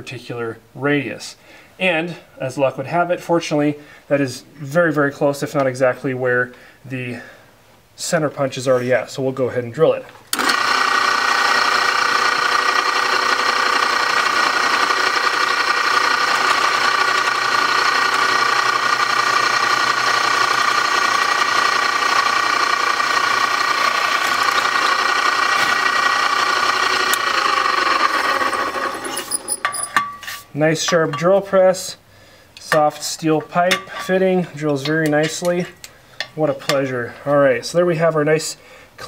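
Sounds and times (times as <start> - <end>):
drill press motor whining: 10.3 - 30.0.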